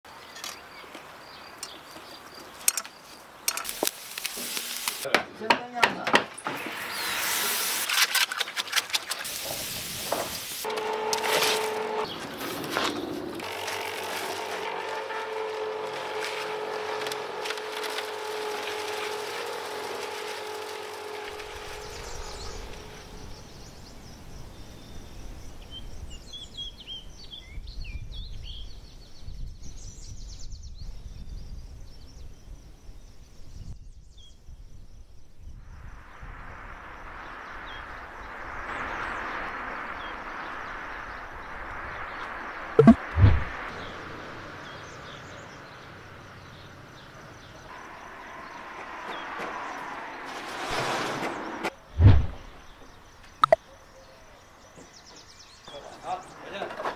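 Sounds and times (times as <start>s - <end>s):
low rumble: 36.7s - 43.9s
bird chirps: 37.3s - 44.0s, 52.3s - 56.4s.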